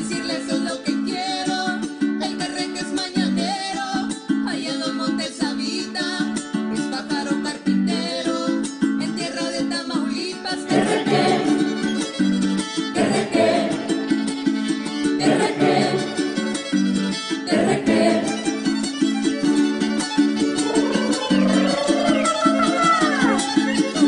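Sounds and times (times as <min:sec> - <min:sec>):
small guitar strumming: 0:00.0 - 0:24.0
violin melody: 0:10.5 - 0:24.0.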